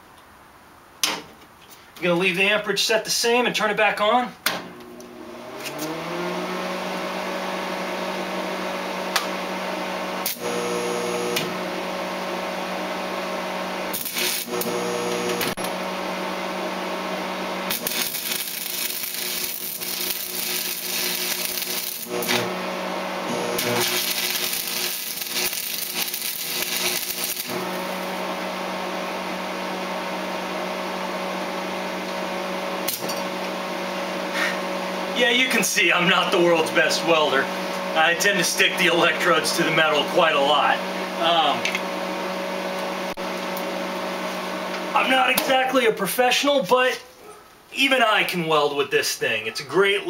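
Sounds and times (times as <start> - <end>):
welder hum: 4.7 - 46.0
welding arc crackling: 10.2 - 11.5, 13.9 - 15.8, 17.5 - 28.5, 44.9 - 45.8.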